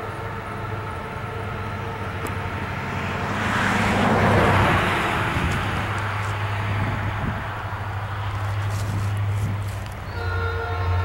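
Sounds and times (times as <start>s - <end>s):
vehicle passing: 1.7s - 10.1s.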